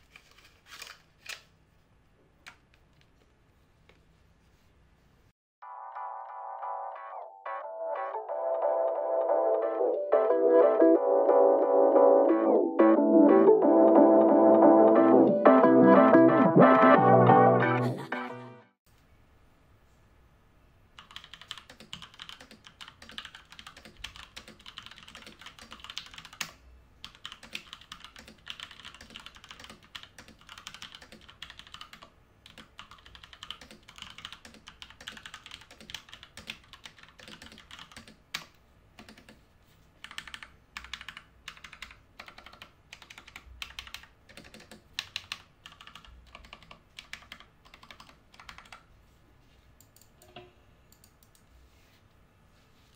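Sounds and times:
mechanical keyboard typing: 21.0s - 39.4s, 40.0s - 48.9s.

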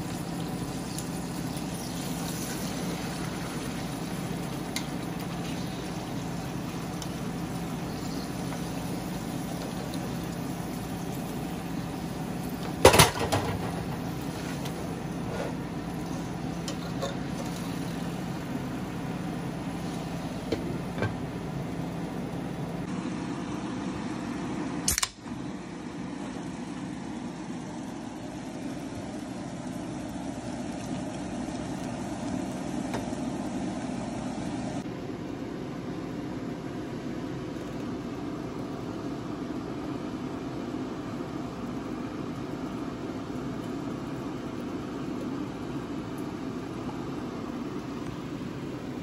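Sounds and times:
sharp click: 24.9s - 25.2s.

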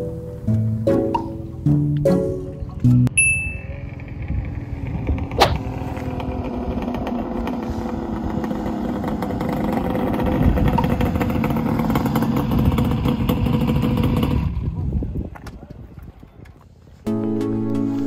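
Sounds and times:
two-stroke engine idling: 3.4s - 15.0s.

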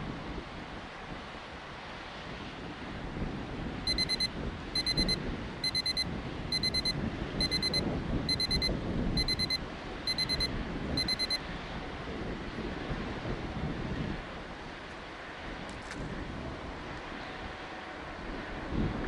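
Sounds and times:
timer alarm short high beeps: 3.9s - 11.4s.

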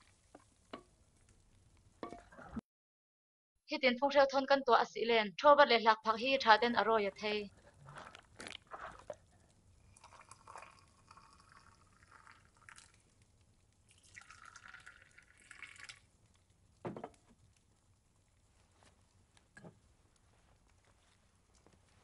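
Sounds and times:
tea pouring into cups: 8.0s - 13.2s, 13.8s - 16.1s
soft knock: 16.8s - 17.2s.

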